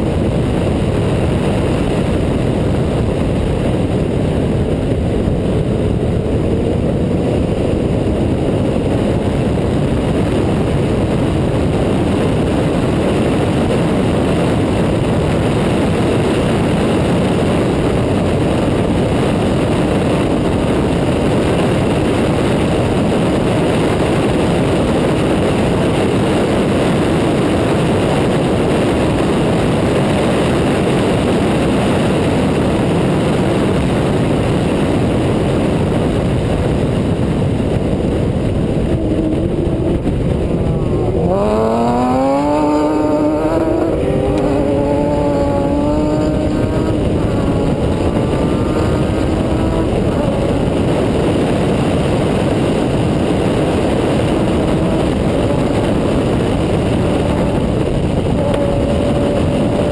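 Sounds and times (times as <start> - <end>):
truck engine accelerating: 0.0 - 59.9
wind and road rush: 0.0 - 59.9.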